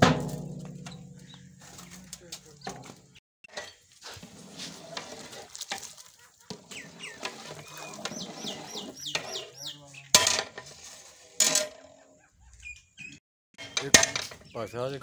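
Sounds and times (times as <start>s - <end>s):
sharp metal clanks: 0.0s - 1.9s, 10.1s - 10.7s, 13.6s - 14.5s
bird chirping: 0.8s - 3.8s, 6.0s - 10.2s, 12.0s - 15.0s
metal ladle stirring in cauldron: 3.5s - 9.3s.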